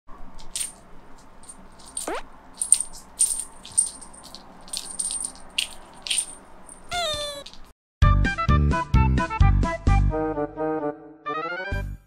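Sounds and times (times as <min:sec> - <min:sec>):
cat toy rattling and jingling: 0:00.4 - 0:07.7
falling squeak: 0:06.9 - 0:07.7.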